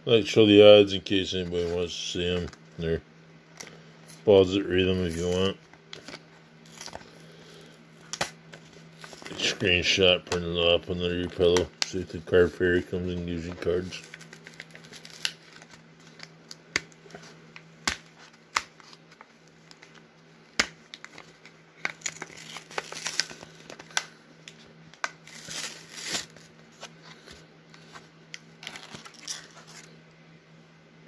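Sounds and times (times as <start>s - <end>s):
plastic wrapper crinkling: 4.8s - 9.6s, 13.4s - 17.0s, 20.9s - 27.4s, 28.4s - 29.9s
wrapper tearing open: 5.0s - 7.1s, 8.0s - 9.5s, 13.9s - 16.6s, 20.9s - 24.1s, 25.2s - 26.5s, 28.6s - 29.9s.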